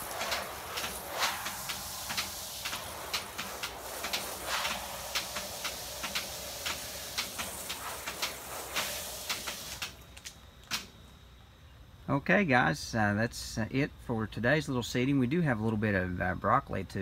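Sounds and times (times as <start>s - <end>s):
hose nozzle spraying water: 0.0s - 10.9s.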